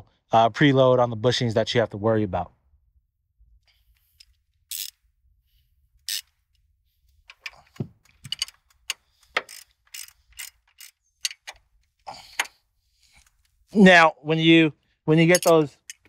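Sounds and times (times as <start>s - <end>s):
socket ratchet clicking: 4.0s - 5.0s, 6.0s - 6.3s, 7.3s - 11.7s, 15.4s - 16.0s.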